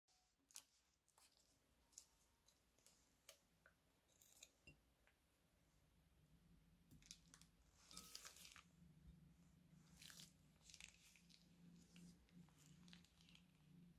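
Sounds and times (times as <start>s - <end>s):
plastic piping bag crinkling: 9.8s - 13.9s.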